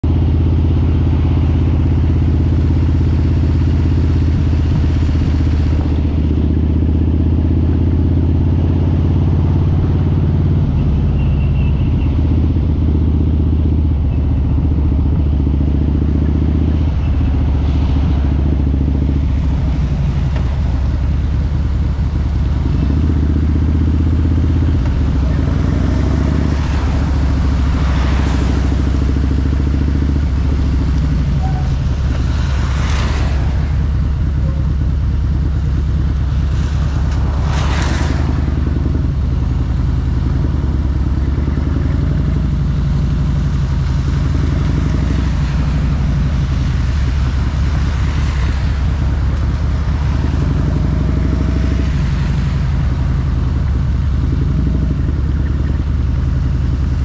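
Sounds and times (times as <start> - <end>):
motorcycle engine running: 0.0 - 57.0
tyres hissing on wet road: 16.2 - 57.0.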